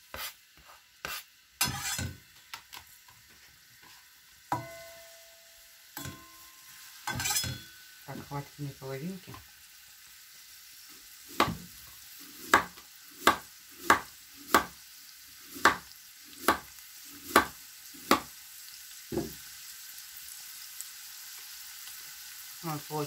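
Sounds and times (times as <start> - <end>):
knife chopping on cutting board: 0.1 - 2.0, 11.3 - 11.7, 12.4 - 14.8, 15.6 - 18.3.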